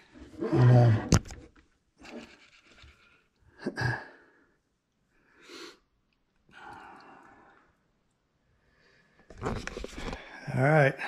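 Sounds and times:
person breathing: 0:03.6 - 0:05.9, 0:06.5 - 0:07.8, 0:08.6 - 0:09.3.

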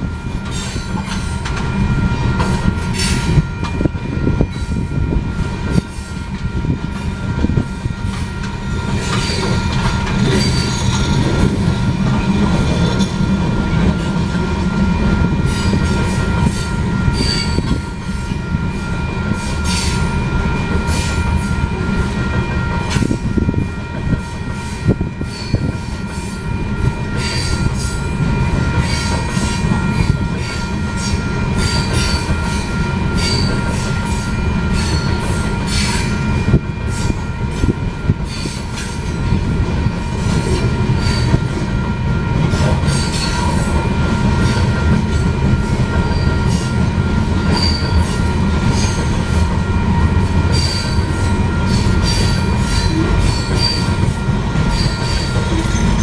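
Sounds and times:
rail clicks: 0:00.0 - 0:56.0
train wheels rumbling on rail: 0:00.0 - 0:56.0
high wheel squeals: 0:07.6 - 0:11.6, 0:14.8 - 0:22.0, 0:22.7 - 0:39.0, 0:40.9 - 0:41.9, 0:47.4 - 0:56.0.

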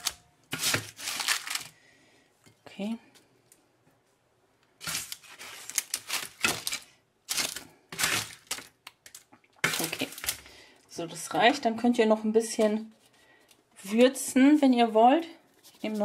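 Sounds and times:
paper rustling: 0:00.0 - 0:01.7, 0:04.8 - 0:08.7, 0:15.5 - 0:16.0
spatula scraping crispy potatoes: 0:04.8 - 0:06.8, 0:07.4 - 0:08.6.

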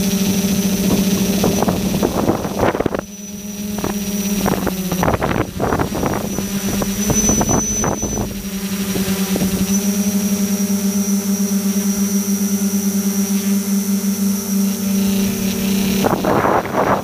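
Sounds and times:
drone motors buzzing: 0:00.0 - 0:17.0
wind buffeting microphone: 0:00.7 - 0:09.7, 0:15.1 - 0:17.0.

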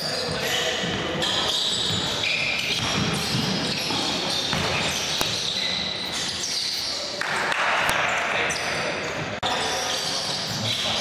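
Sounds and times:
basketball bouncing on wooden floor: 0:02.7 - 0:05.3.

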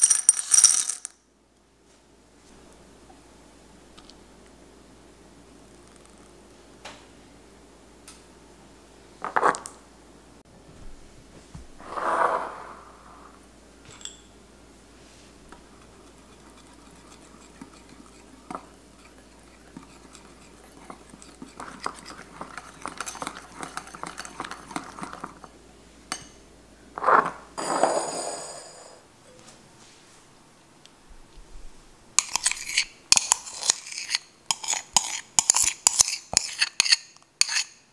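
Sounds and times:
whisk ticking against bowl: 0:15.7 - 0:25.3.

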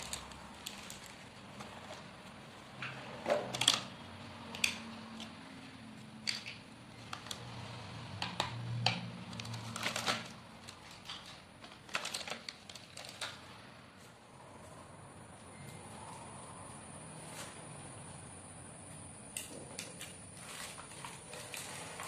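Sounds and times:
plastic wrapping crinkling: 0:00.0 - 0:01.7
plastic toy pieces clacking: 0:08.3 - 0:13.4.

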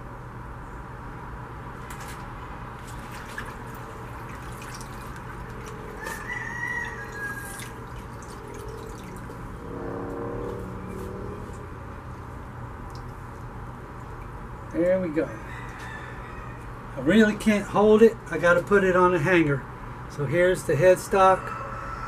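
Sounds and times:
water sloshing and dripping: 0:01.8 - 0:09.8, 0:10.8 - 0:14.8.

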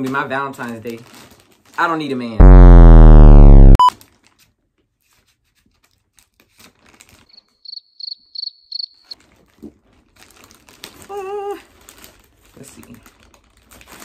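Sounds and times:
plastic mailer bag crinkling: 0:00.9 - 0:01.8, 0:06.4 - 0:07.2.

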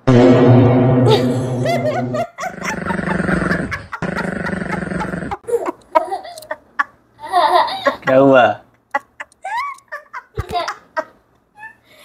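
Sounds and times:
droning backing sound: 0:00.0 - 0:02.8
stifled laughter: 0:01.9 - 0:08.2.

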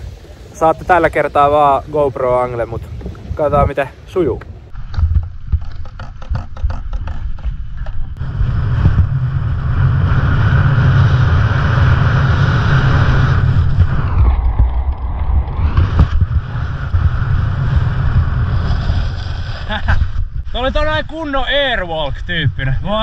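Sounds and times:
wind buffeting camera: 0:00.0 - 0:23.0
skis scraping over snow: 0:15.6 - 0:19.9.

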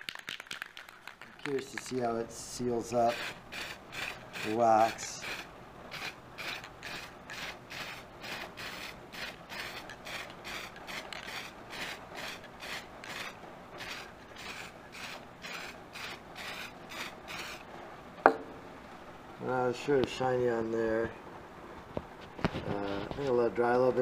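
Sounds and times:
aerosol spray can hissing: 0:03.0 - 0:17.6.

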